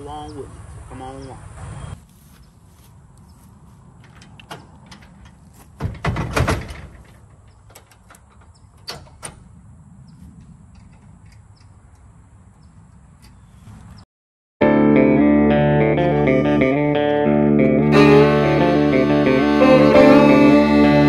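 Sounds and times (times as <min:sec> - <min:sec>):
sharp latch clicks: 0:04.0 - 0:09.4
trailer coupler clanking: 0:04.0 - 0:09.5.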